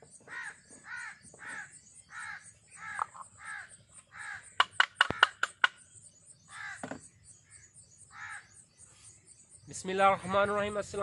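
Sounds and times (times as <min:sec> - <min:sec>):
crows cawing: 0:00.3 - 0:05.7, 0:06.5 - 0:08.5
sharp clicks: 0:04.6 - 0:05.8.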